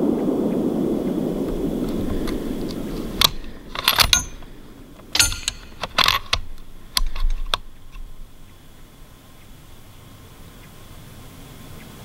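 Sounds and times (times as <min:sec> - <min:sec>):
gear clicking and clinking: 0:02.2 - 0:08.3.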